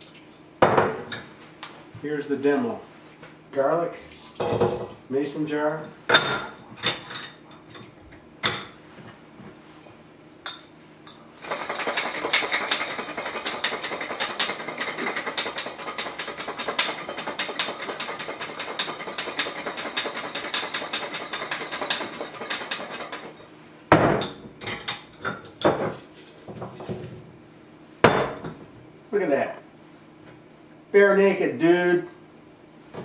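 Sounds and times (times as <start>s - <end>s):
garlic rattling in glass jar: 11.4s - 23.5s.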